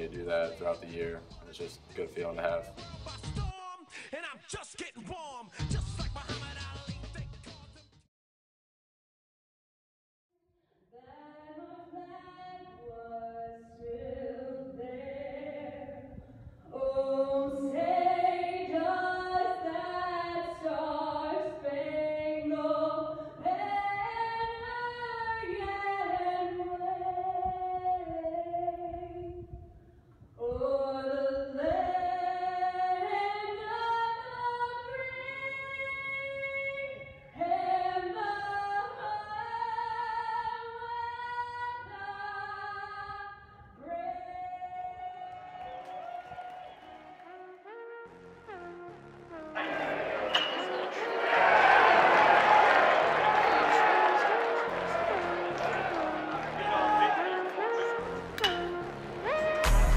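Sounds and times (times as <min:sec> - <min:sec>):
voices singing in harmony: 0:49.3 - 0:59.9.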